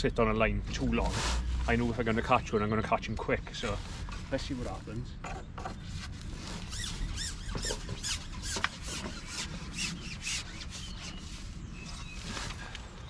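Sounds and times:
fishing pole squeaking: 0:05.9 - 0:12.1.

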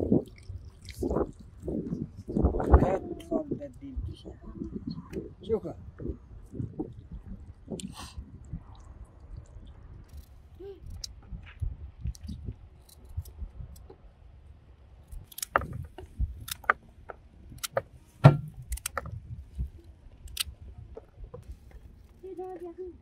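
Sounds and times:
sharp clicks and knocks: 0:15.2 - 0:19.2.

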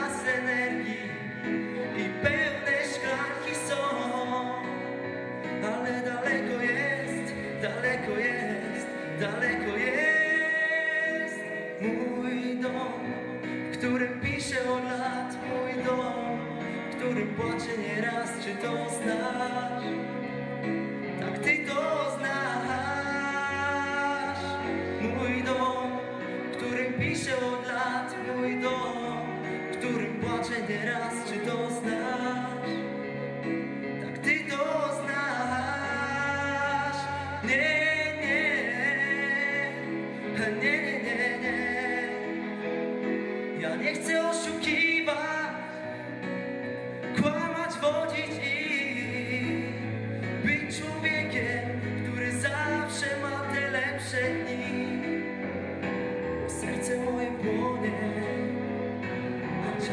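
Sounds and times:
young man singing pop ballad: 0:00.0 - 0:59.9
vocal ensemble singing harmonies: 0:53.8 - 0:59.9.

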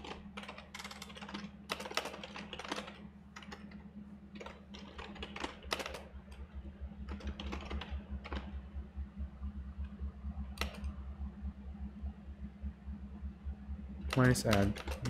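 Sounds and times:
keyboard typing: 0:00.0 - 0:08.6, 0:10.6 - 0:11.0, 0:14.1 - 0:15.0
steady low hum: 0:00.0 - 0:15.0.

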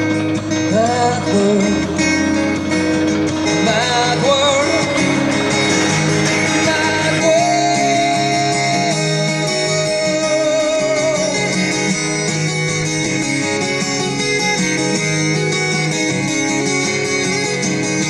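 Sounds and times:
bass line: 0:00.0 - 0:10.0
guitar: 0:00.0 - 0:18.0
wavering melody note: 0:02.2 - 0:10.2.

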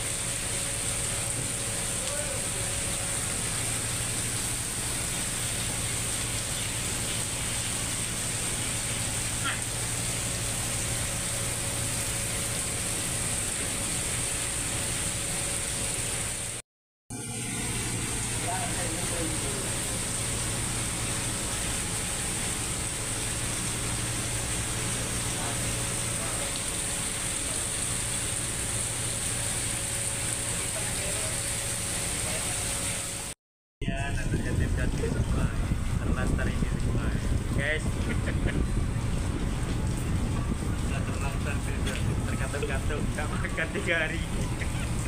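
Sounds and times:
heavy rain falling: 0:00.0 - 0:16.6, 0:18.1 - 0:32.7, 0:36.0 - 0:45.0
low engine hum: 0:34.0 - 0:45.0.

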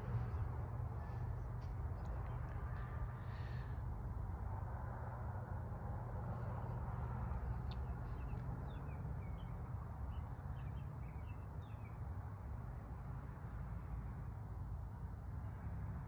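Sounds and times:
low steady rumble: 0:00.0 - 0:11.8.

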